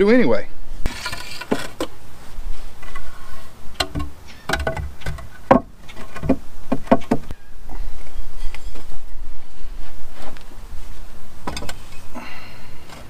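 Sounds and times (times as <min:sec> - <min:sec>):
wooden boards knocking and scraping: 0:00.9 - 0:02.0, 0:02.8 - 0:07.4.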